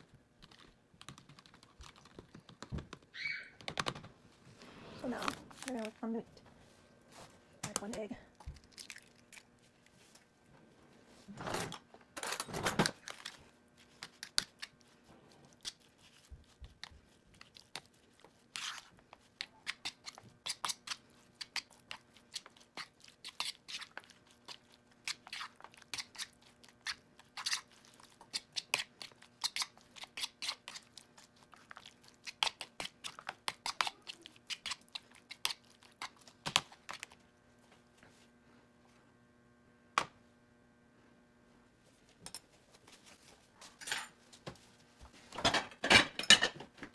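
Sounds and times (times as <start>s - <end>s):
wet squishing of meat: 8.4s - 10.0s, 15.4s - 37.2s.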